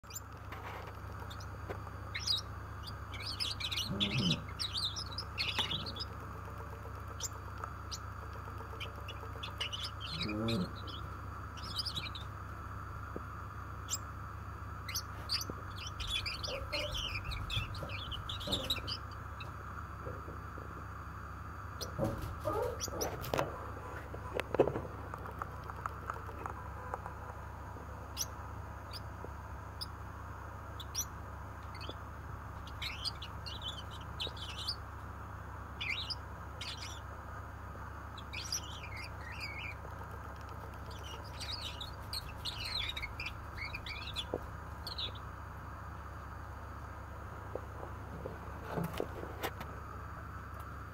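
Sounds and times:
finch singing: 0.0s - 12.4s, 13.8s - 14.1s, 14.8s - 19.5s, 21.8s - 23.6s, 28.1s - 29.1s, 30.7s - 35.0s, 35.6s - 45.4s.

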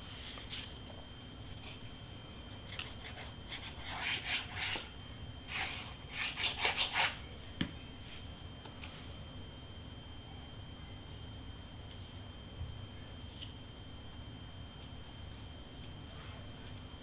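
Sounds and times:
paper rustling and rubbing: 0.0s - 0.8s.

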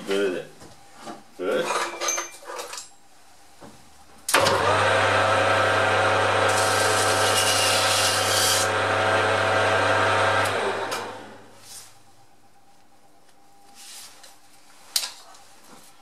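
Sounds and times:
lathe motor hum: 4.4s - 11.6s.

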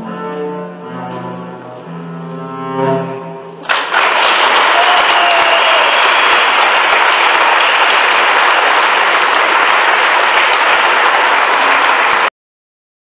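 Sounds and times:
audience applauding: 3.6s - 12.3s.

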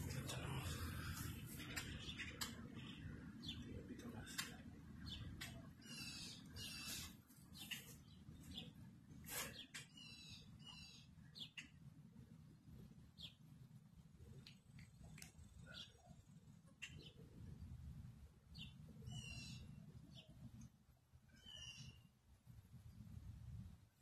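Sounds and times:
songbird chirps and calls: 0.0s - 11.8s, 14.4s - 17.3s, 18.5s - 20.5s, 21.3s - 22.1s.

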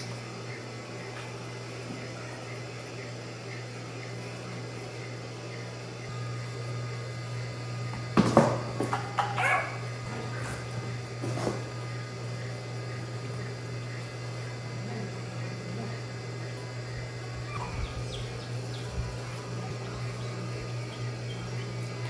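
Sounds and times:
steady low hum: 0.0s - 22.0s
dog barking: 9.2s - 9.8s, 17.5s - 18.0s.

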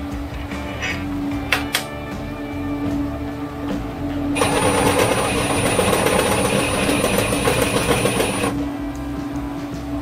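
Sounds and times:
drill press grinding into steel: 4.4s - 8.5s.

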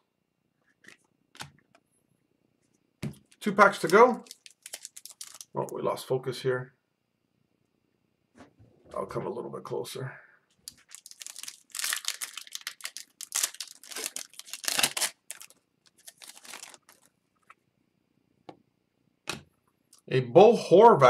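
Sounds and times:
cards rustling and ticking: 3.1s - 5.6s, 10.6s - 17.5s
foil wrapper tearing and crinkling: 3.6s - 5.6s, 10.6s - 17.1s.

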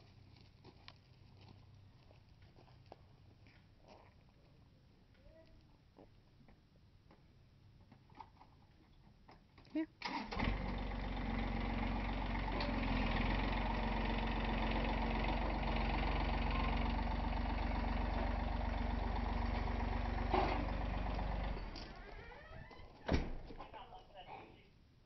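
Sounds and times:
tractor diesel engine running: 10.0s - 22.8s
clunk: 19.4s - 22.2s.

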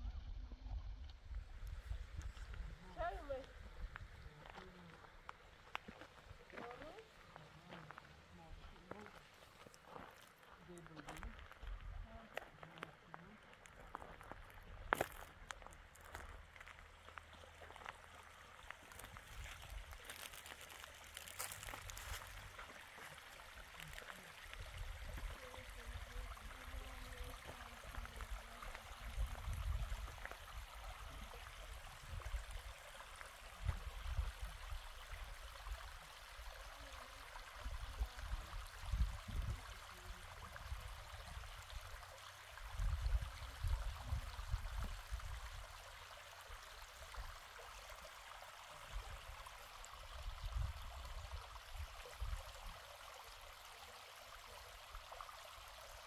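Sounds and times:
stream trickling over rock: 0.0s - 56.0s.

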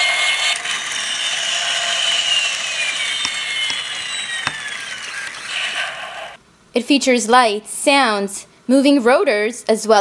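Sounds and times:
toy helicopter motor whirring: 0.0s - 6.4s.

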